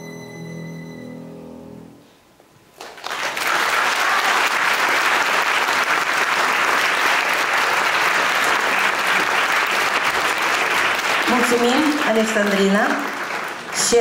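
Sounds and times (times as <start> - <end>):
audience applause: 2.8 - 14.0.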